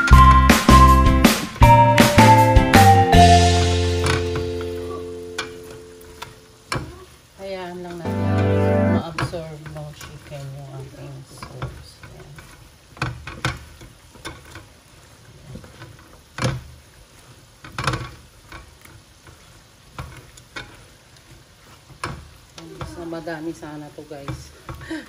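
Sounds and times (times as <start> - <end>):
low frying sizzle: 0.0 - 25.0
wings stirred in thick sauce: 9.0 - 24.9.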